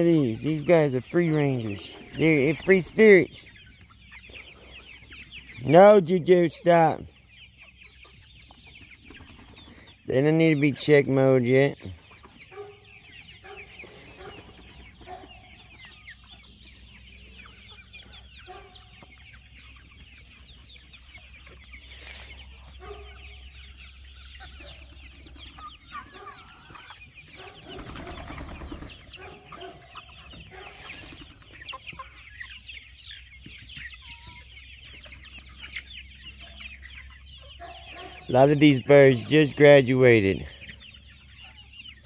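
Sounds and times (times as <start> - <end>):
chickens clucking: 0.0 - 42.0
chicks peeping: 0.0 - 42.0
rustle: 21.4 - 22.8.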